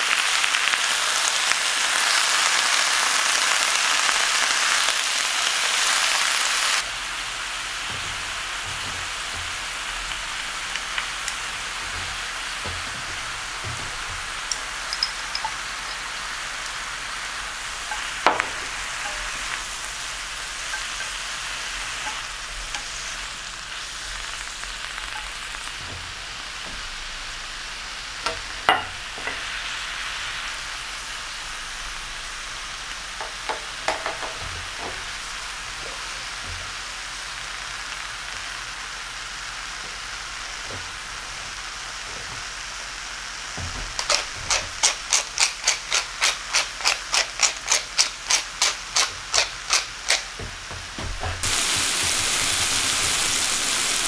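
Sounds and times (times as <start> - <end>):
greens sizzling in a frying pan: 0.0 - 54.0
wooden spatula tapping pan: 7.8 - 16.2, 17.9 - 23.1, 28.2 - 29.5, 33.2 - 35.2.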